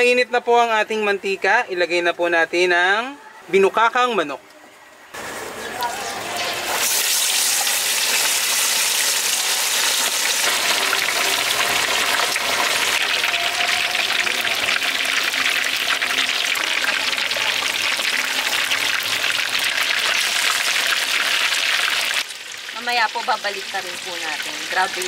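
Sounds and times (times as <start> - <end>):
oil sizzling and crackling: 5.2 - 25.0.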